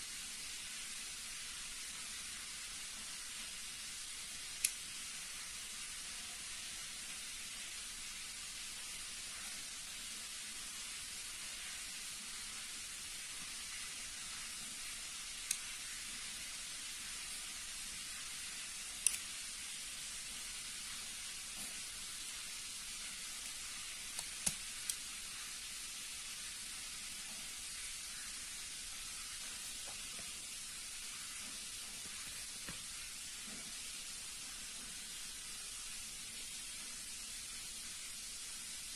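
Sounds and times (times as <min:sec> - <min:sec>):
steady hiss: 0:00.0 - 0:38.9.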